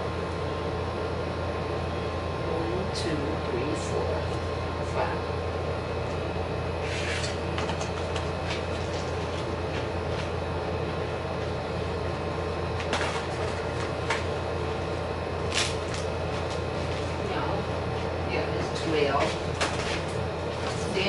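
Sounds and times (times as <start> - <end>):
low background hum: 0.0 - 21.0.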